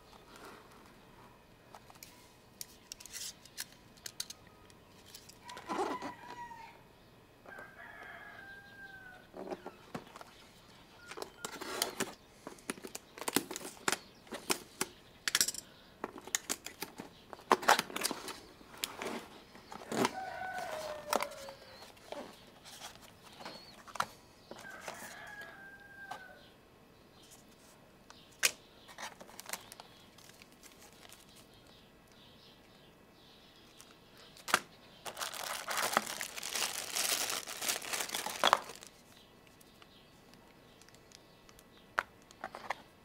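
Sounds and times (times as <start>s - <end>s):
rooster crowing: 5.4s - 6.8s, 7.5s - 9.3s, 19.9s - 21.9s, 24.6s - 26.5s
cardboard and plastic rustling: 11.1s - 14.9s, 16.0s - 25.5s, 28.4s - 31.5s, 33.8s - 39.2s.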